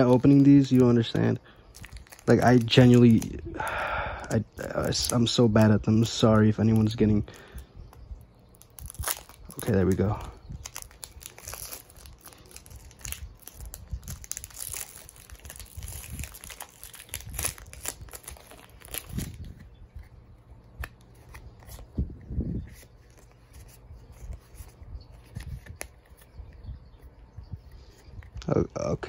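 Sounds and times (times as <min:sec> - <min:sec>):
foil wrapper tearing and crinkling: 0:00.0 - 0:03.5, 0:04.6 - 0:07.0, 0:08.4 - 0:21.9
handling card stack: 0:00.0 - 0:26.6.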